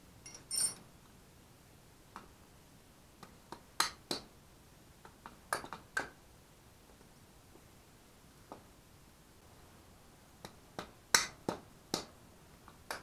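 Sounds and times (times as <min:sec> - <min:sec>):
ringing metallic clink: 0:00.2 - 0:00.8
hammer tapping metal wrench: 0:00.3 - 0:00.8.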